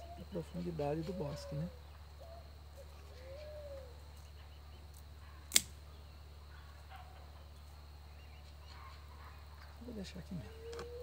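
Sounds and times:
sharp click: 5.5 - 5.7.

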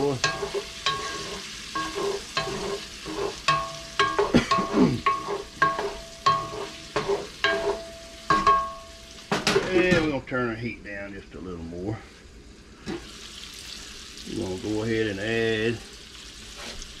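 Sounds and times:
sausage sizzling in a pot: 0.0 - 10.0, 12.7 - 17.0
utensil scraping and knocking pot: 0.0 - 10.0.

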